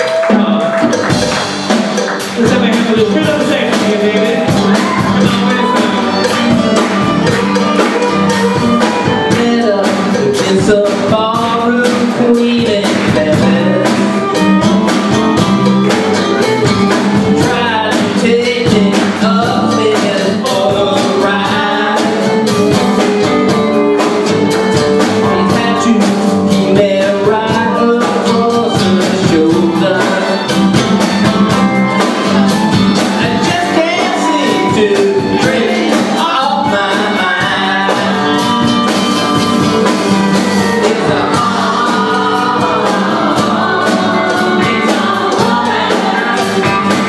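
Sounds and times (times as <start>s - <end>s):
drum kit: 0.0s - 47.0s
electric guitar: 0.0s - 47.0s
voices singing: 0.0s - 47.0s
fiddle: 3.5s - 9.9s.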